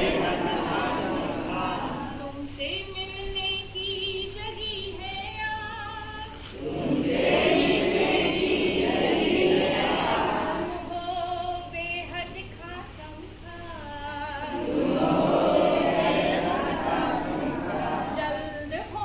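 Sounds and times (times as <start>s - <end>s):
group of voices singing: 0.0s - 2.6s, 6.3s - 11.3s, 14.3s - 18.7s.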